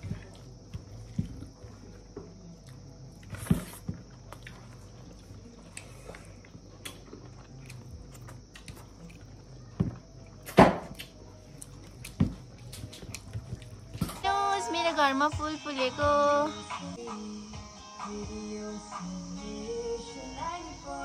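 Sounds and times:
person chewing: 2.6 - 9.6.

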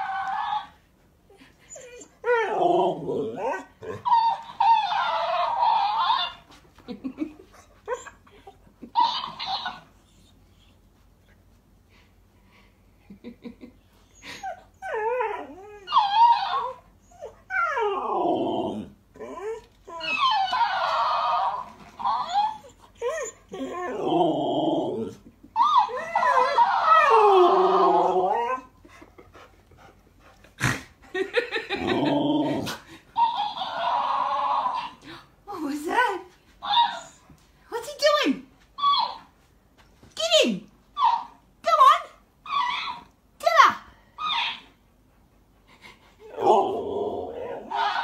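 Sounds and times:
dog making whiny calls: 3.8 - 6.6, 8.8 - 10.2, 33.2 - 35.0.

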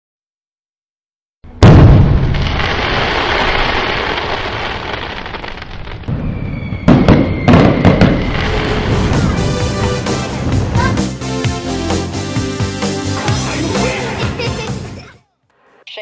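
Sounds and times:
fireworks bangs: 1.5 - 11.7
fireworks crackle: 2.0 - 11.2.

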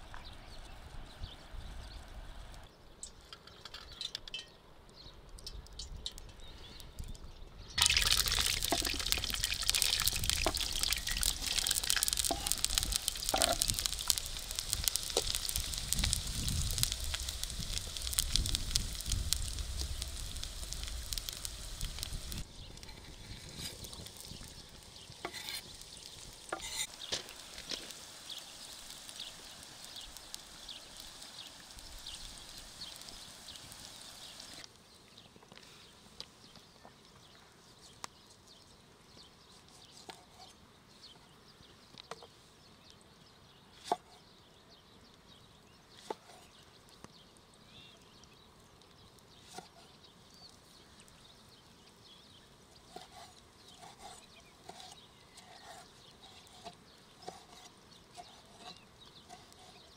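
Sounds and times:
onions sizzling in hot oil: 7.8 - 34.6.

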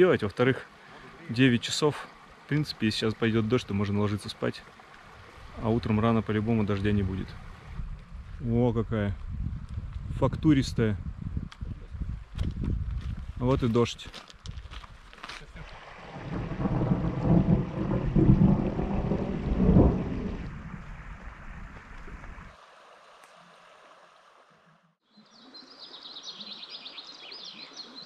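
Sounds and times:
steady rain: 0.0 - 8.4, 14.7 - 24.0
thunder rolling: 16.0 - 22.5.

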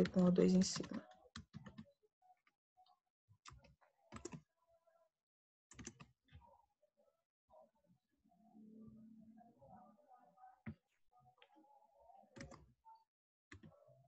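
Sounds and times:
computer keyboard typing: 3.5 - 4.4, 5.7 - 6.0, 12.4 - 12.6.

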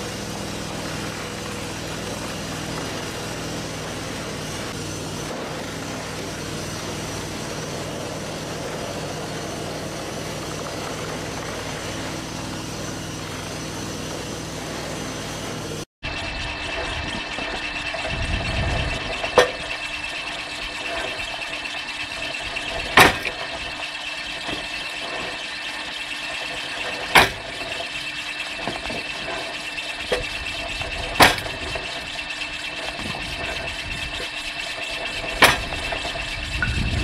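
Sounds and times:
log splitter humming: 0.0 - 37.0
cleaver chopping firewood: 23.0 - 23.4.

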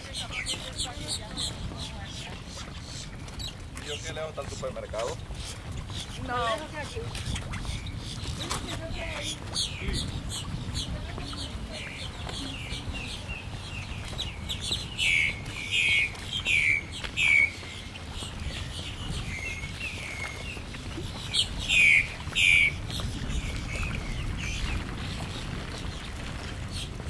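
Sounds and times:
birds calling: 0.0 - 27.0
soft bird chirps: 9.6 - 22.7.

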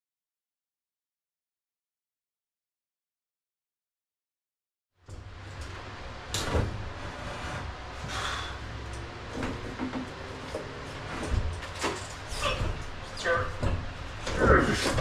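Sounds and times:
steady low hum: 5.0 - 15.0.

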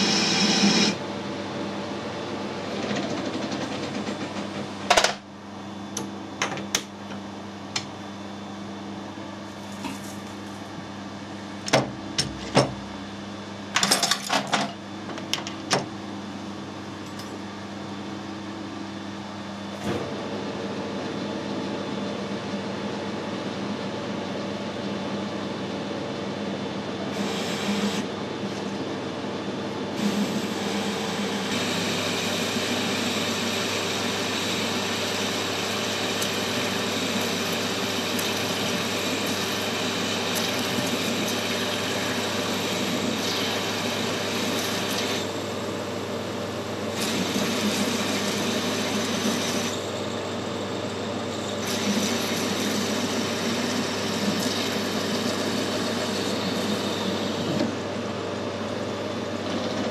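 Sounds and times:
lathe tool cutting hiss: 0.0 - 1.0, 30.0 - 45.4, 51.4 - 57.6
lathe motor hum: 0.0 - 1.1, 26.8 - 59.9.

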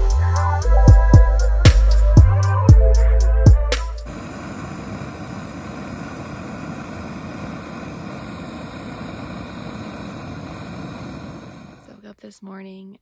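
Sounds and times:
stove burner hissing: 4.0 - 12.1.

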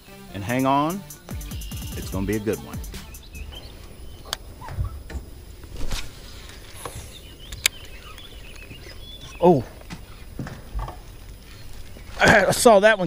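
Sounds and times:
faint high chirps: 0.6 - 5.3.

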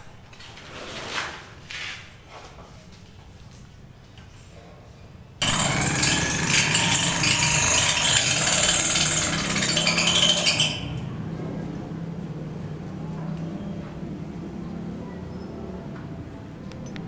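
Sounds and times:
power tool running: 5.4 - 11.1.

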